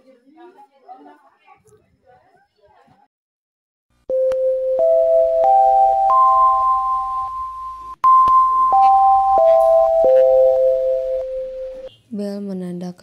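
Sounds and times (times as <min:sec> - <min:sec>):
electronic school bell chime: 0:04.1 - 0:11.9.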